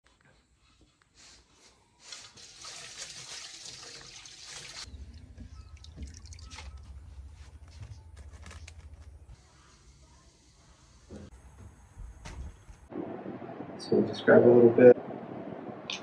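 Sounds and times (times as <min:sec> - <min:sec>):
water splashing in bowl: 0:02.3 - 0:04.9
small splashes and knocks: 0:02.4 - 0:07.0.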